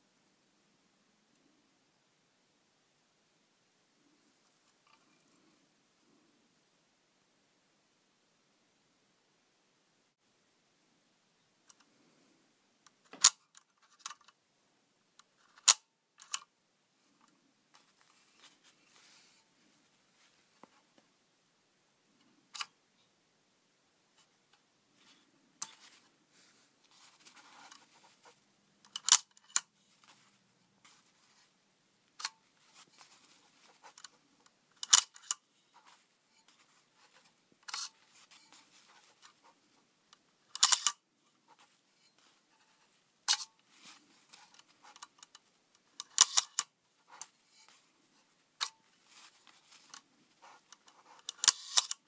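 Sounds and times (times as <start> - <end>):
lens handling sounds: 13.0 - 14.4, 15.4 - 16.5, 22.5 - 22.7, 26.9 - 31.4, 32.2 - 39.6, 40.5 - 42.3, 43.3 - 47.8, 48.6 - 52.0
camera shutter clicks: 40.6 - 41.0, 46.1 - 46.6.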